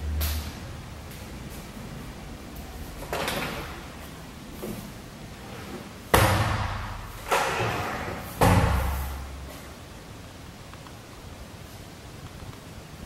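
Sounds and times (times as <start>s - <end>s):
heavy thuds ringing in room: 6.1s - 9.4s.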